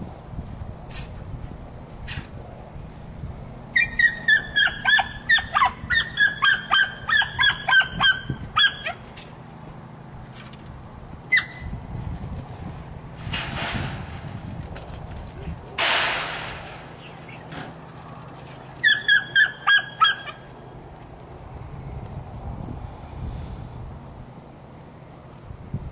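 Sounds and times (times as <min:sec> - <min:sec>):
short high animal calls: 0:18.8 - 0:20.5.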